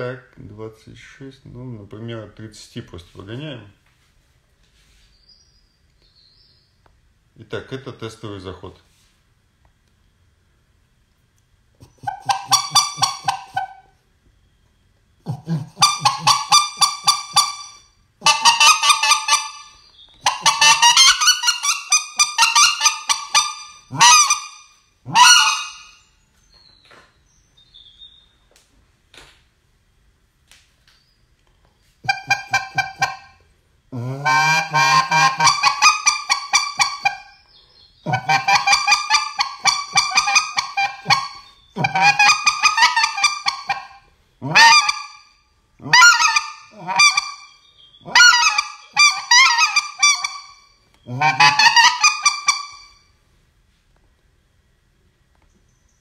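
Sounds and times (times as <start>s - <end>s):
goose call honking: 11.8s - 14.0s, 15.3s - 26.1s, 32.0s - 37.4s, 38.0s - 53.1s.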